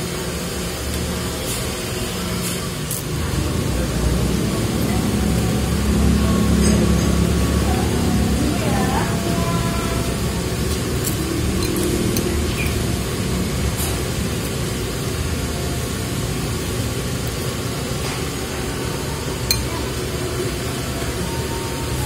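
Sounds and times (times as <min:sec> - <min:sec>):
steady background noise: 0:00.0 - 0:22.0
chopsticks click: 0:11.0 - 0:12.8.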